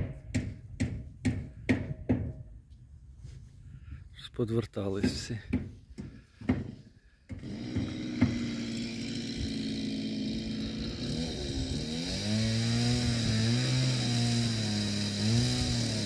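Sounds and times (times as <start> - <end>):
engine running: 7.3 - 16.0.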